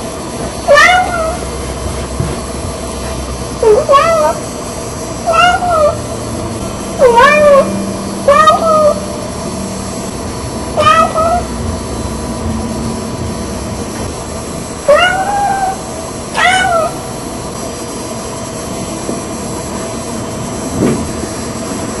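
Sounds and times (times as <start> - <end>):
steady hiss: 0.0 - 22.0
cat meowing: 0.7 - 1.5, 3.6 - 4.4, 5.2 - 6.1, 7.0 - 9.2, 10.7 - 11.5, 14.8 - 17.1.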